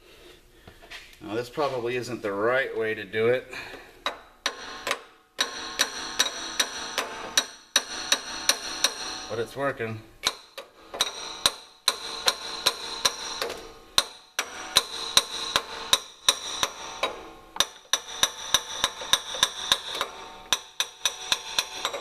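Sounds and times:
hammer tapping on metal: 4.0 - 9.3, 10.2 - 22.0.

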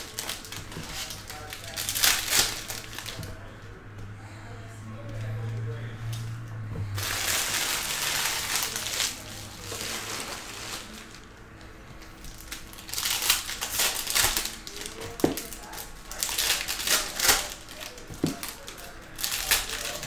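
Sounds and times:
foil wrapper crinkling: 0.0 - 3.4, 7.0 - 11.4, 12.0 - 20.0.

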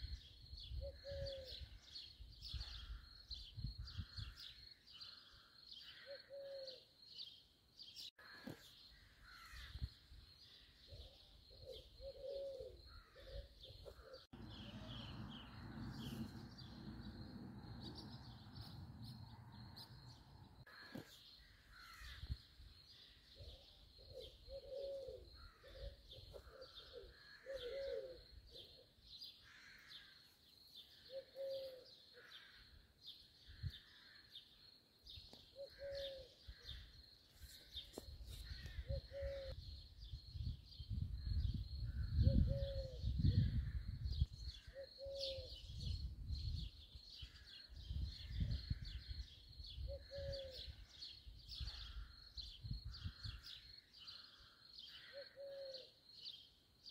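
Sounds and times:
wind rumble on microphone: 0.0 - 4.5, 38.5 - 44.8, 45.5 - 53.6
low bird calls: 0.0 - 7.0, 8.1 - 30.2, 30.8 - 34.6, 35.2 - 56.5
high bird chirping: 11.2 - 21.0.

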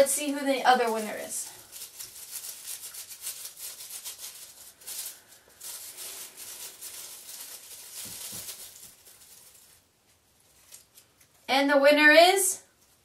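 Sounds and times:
paper slips rustling: 0.2 - 9.8.

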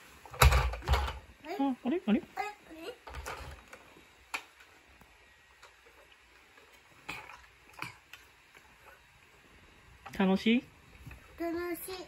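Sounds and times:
plastic toy clatter: 3.0 - 3.7.

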